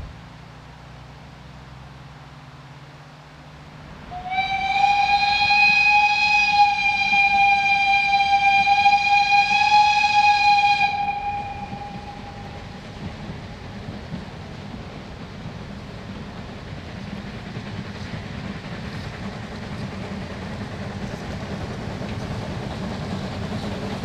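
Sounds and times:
steam locomotive whistle: 0:04.1 - 0:13.5.

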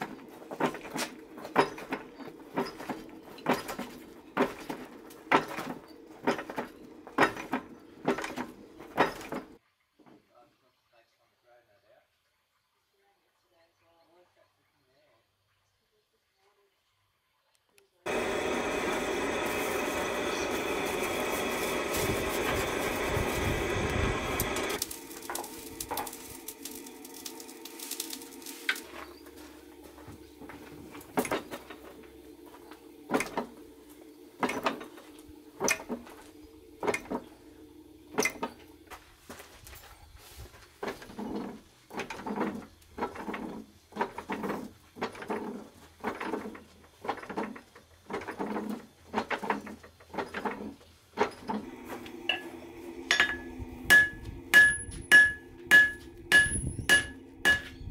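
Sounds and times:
forge fire roaring under forced air: 0:18.1 - 0:38.9, 0:51.6 - 0:57.9
steady machine hum: 0:18.1 - 0:39.1, 0:51.5 - 0:57.9
forging hammer striking metal: 0:52.3 - 0:57.9.

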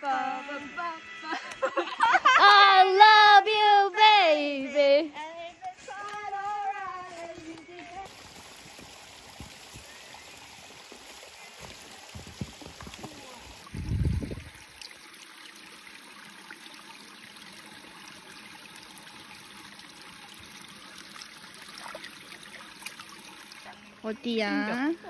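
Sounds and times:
stream trickling over pebbles: 0:05.2 - 0:25.0.

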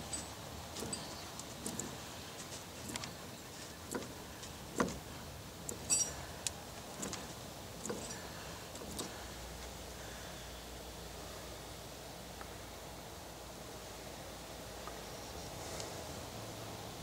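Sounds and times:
metallic gear clicks and clunks: 0:00.0 - 0:09.3.

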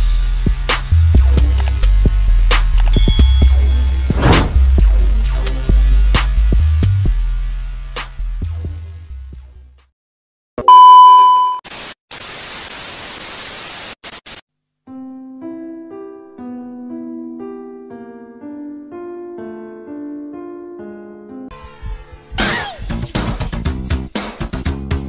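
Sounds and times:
static hiss: 0:11.7 - 0:14.4
keyboard melody: 0:14.9 - 0:21.5.

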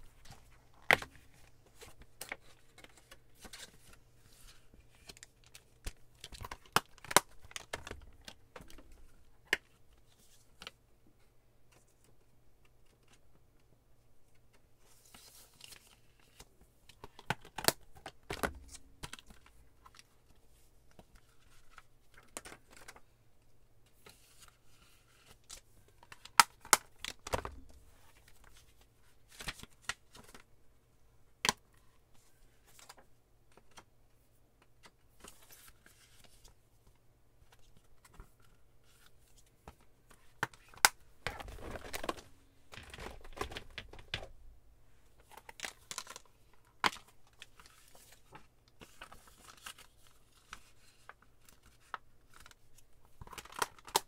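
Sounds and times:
plastic cases clicking and knocking: 0:40.4 - 0:44.4.

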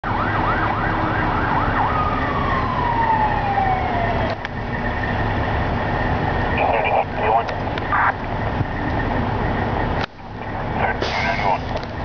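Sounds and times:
siren yelping and wailing: 0:00.0 - 0:04.6, 0:06.4 - 0:08.4.

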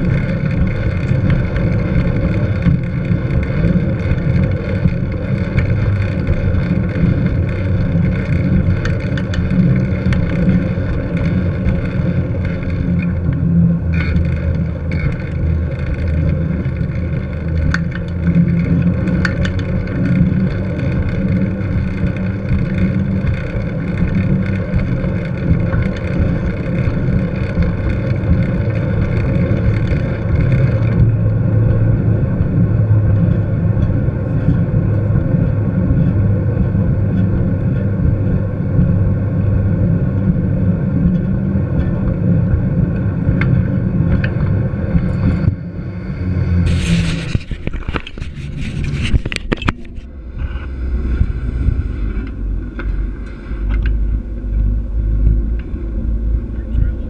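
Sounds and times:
tyre noise on paved path: 0:00.0 - 0:57.0
wind buffeting microphone: 0:00.0 - 0:57.0.

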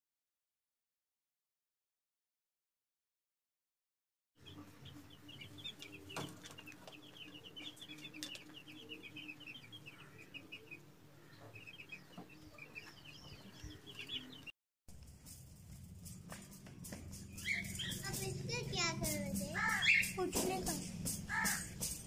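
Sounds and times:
chicks cheeping: 0:04.4 - 0:14.5, 0:17.3 - 0:18.4, 0:19.6 - 0:22.0.

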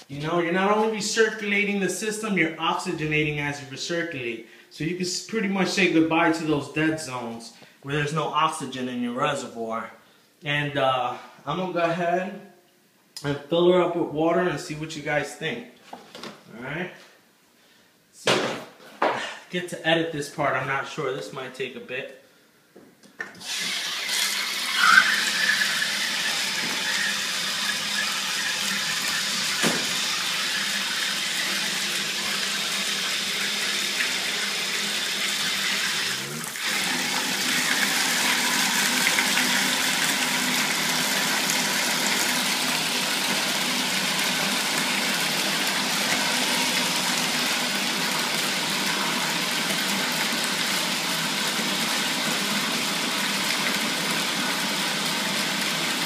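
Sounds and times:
water pouring into plastic tote: 0:23.4 - 0:56.0.

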